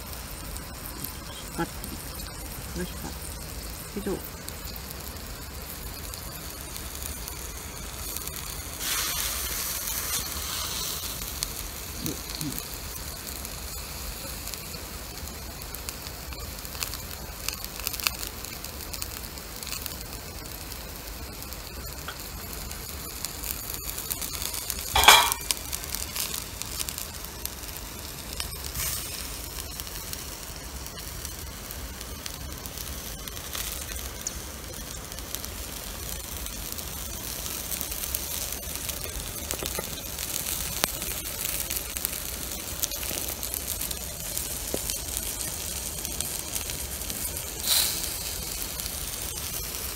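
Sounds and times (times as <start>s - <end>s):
fire crackles: 0.0s - 49.9s
skewers sizzling on grill: 0.0s - 49.9s.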